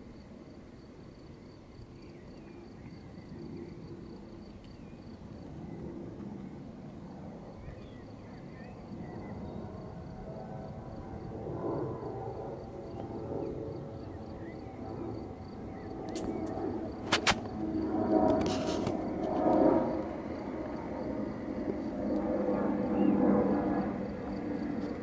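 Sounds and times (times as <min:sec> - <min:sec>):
insect chirping: 0:00.1 - 0:05.5, 0:07.8 - 0:25.0
wind rumble on microphone: 0:05.3 - 0:25.0.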